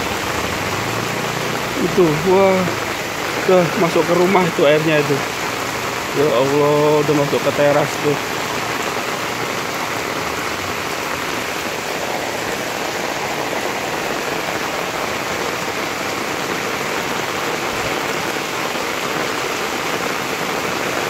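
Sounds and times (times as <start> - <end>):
heavy rain on paving: 0.0 - 21.0.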